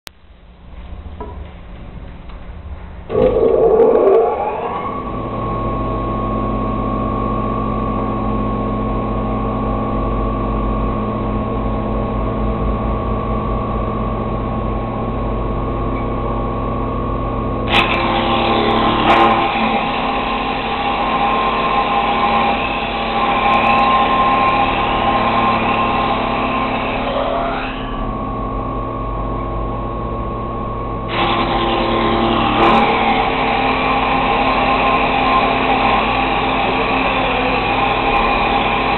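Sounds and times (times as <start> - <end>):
machine motor hum and whine: 2.6 - 38.9
wood cutting noise: 3.1 - 7.4, 17.6 - 28.5, 31.0 - 38.9.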